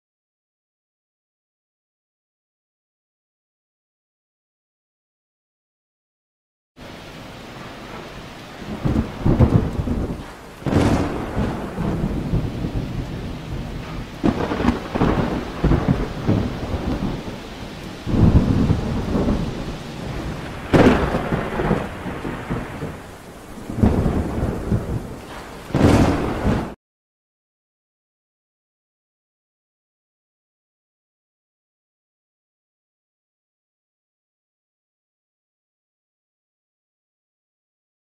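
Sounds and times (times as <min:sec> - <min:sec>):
steady hiss: 0:06.8 - 0:26.5
thunder claps and rumbles: 0:06.9 - 0:26.8.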